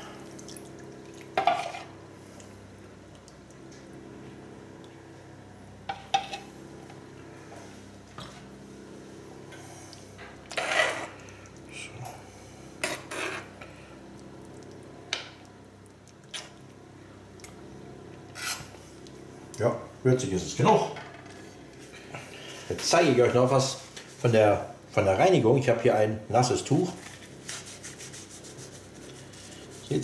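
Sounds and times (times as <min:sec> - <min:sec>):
low steady hum: 0:00.0 - 0:30.0.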